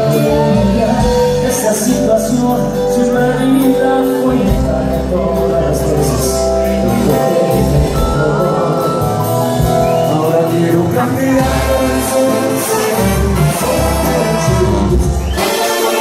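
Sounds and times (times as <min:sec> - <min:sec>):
tuba bass line: 0:00.0 - 0:16.0
horn section playing: 0:06.0 - 0:16.0.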